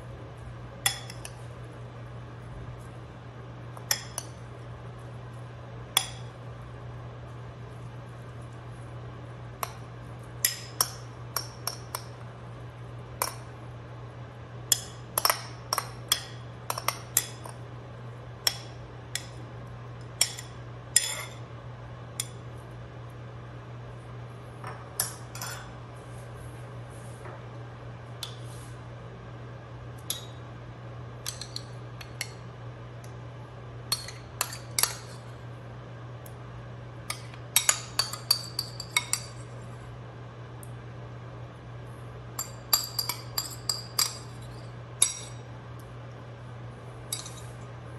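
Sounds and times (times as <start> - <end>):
steady low hum: 0.0 - 47.9
metal spoon clinking on bowls: 0.8 - 1.4, 14.7 - 17.6, 20.1 - 21.4, 25.0 - 25.7, 30.0 - 30.4, 31.2 - 32.4, 33.9 - 35.3, 37.1 - 39.5, 42.4 - 45.4, 47.1 - 47.6.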